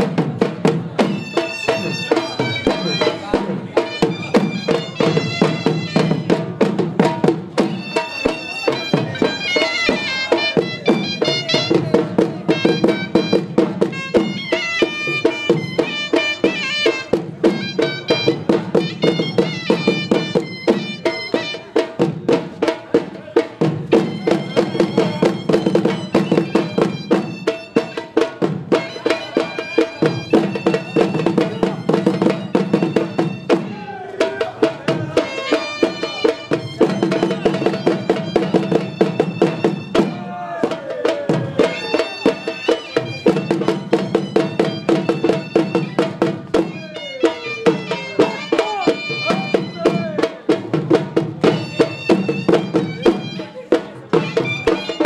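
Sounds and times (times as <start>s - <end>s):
dhol drum beating fast rhythm: 0.0s - 55.0s
shrill double-reed pipe melody: 1.1s - 6.5s, 7.6s - 21.8s, 24.0s - 34.4s, 35.1s - 40.6s, 41.6s - 50.3s, 51.4s - 55.0s.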